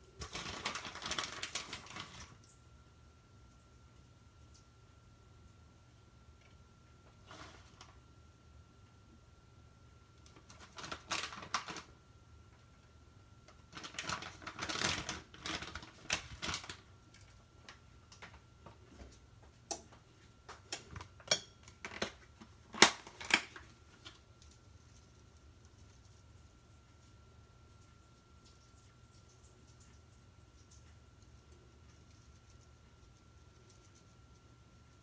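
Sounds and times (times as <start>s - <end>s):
plastic bag crinkling: 0.2s - 2.2s, 10.4s - 11.9s, 13.7s - 16.9s.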